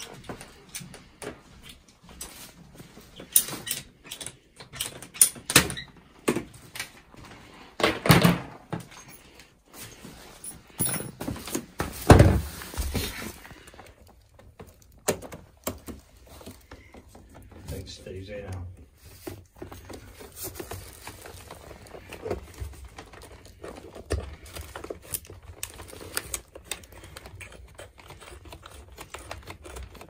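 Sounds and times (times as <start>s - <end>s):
plastic pipe clicks and rustling: 11.3s - 30.0s.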